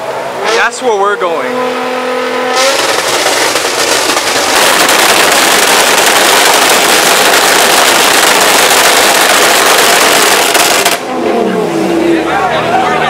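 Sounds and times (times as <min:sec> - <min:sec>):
exhaust pops and bangs crackling: 0:02.6 - 0:11.0.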